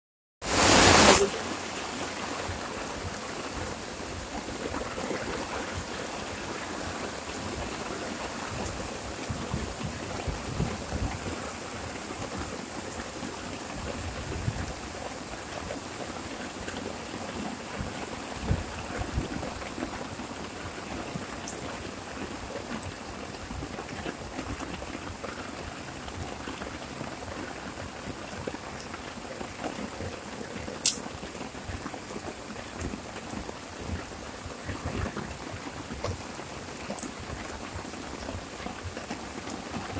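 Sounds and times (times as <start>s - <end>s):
heavy rain falling: 0.4s - 39.9s
sharp click: 30.8s - 31.0s.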